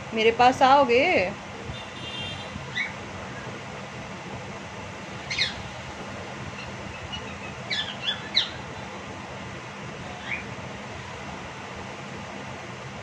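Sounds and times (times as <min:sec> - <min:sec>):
cockatiel squawking: 0:05.3 - 0:05.6, 0:06.6 - 0:08.6.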